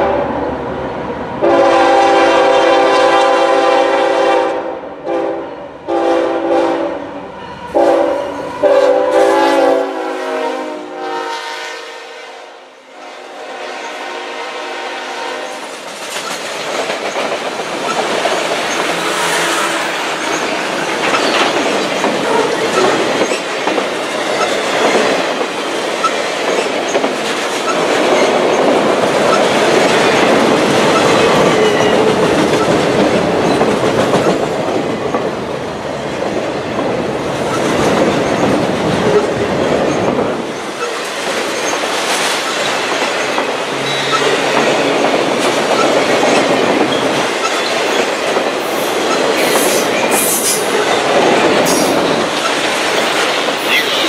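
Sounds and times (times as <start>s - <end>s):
freight train rolling past: 0.0s - 54.0s
steel wheels clattering over rail joints: 15.7s - 54.0s.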